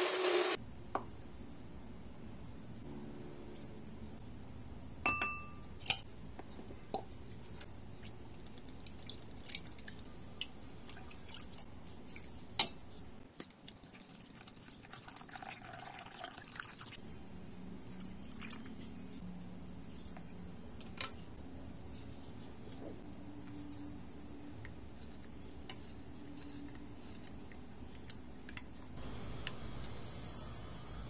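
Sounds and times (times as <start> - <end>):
clinks against glass bowl: 5.0 - 5.7
liquid pouring and splashing: 13.6 - 17.0.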